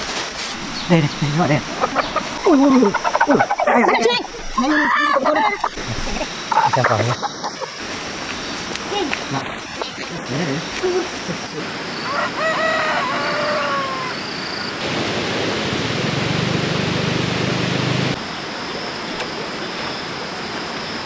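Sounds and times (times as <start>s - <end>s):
rooster crowing: 12.0s - 14.4s
low hum: 14.8s - 18.2s
steady rushing noise: 14.8s - 18.2s.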